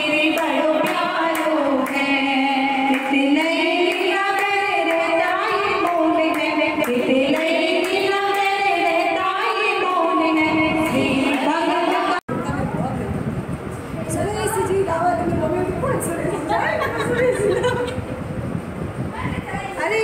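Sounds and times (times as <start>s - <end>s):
women singing devotional song: 0.0s - 12.3s.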